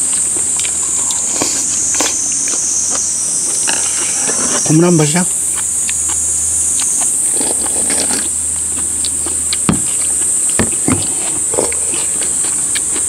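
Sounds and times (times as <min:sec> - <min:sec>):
chewing: 0:00.0 - 0:13.0
insects droning: 0:00.0 - 0:13.0
soup sipping: 0:05.3 - 0:13.0.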